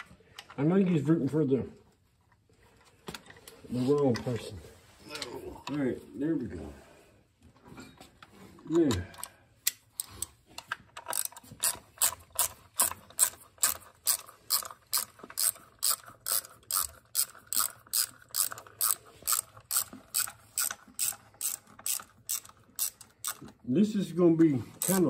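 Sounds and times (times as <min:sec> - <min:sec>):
hand ratchet clicking: 0:10.9 - 0:23.6, 0:24.7 - 0:25.0.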